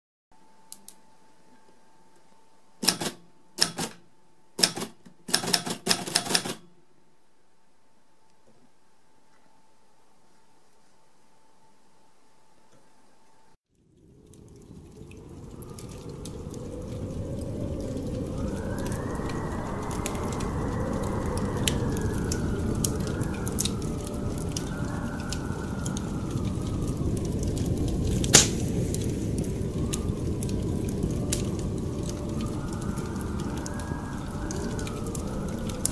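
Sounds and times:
manual typewriter keystrokes: 2.8 - 4.0, 4.6 - 6.6
fireplace crackling and popping: 13.7 - 35.9
howling wind: 13.8 - 35.9.

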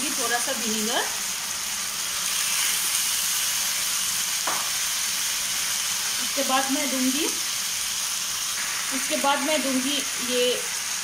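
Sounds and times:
woman speaking: 0.0 - 1.2, 6.2 - 7.4, 8.9 - 10.7
vegetables sizzling in frying pan: 0.0 - 11.0.

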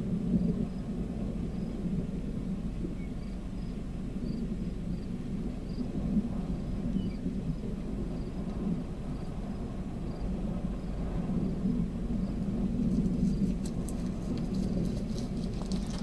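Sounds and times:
thunderstorm low rumble: 0.0 - 16.0
faint insect chirps: 2.9 - 5.9, 6.9 - 8.4.

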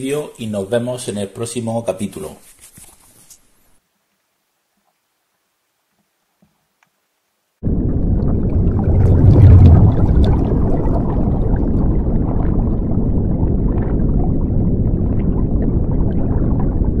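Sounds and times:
bubbles rushing up: 7.6 - 17.0
underwater bubbling rumble: 7.6 - 17.0.

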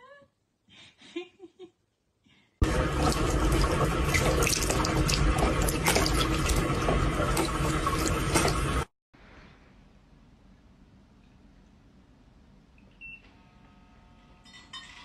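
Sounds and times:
tap water splashing into basin: 2.6 - 8.9.

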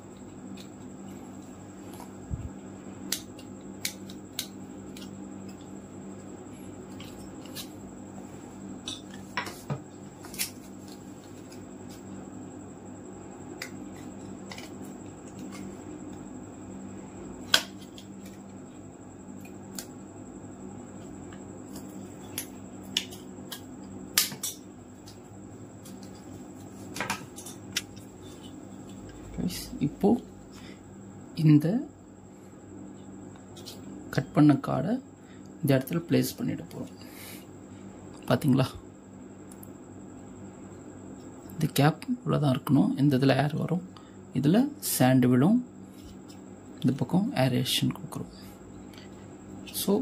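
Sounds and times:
steady low hum: 0.0 - 50.0
scissors snipping plastic card: 3.1 - 5.6.

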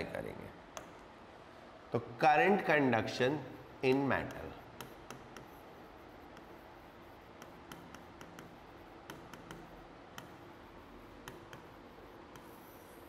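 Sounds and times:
faint room hum: 0.0 - 13.0
chalk tapping on a board: 3.8 - 13.0.

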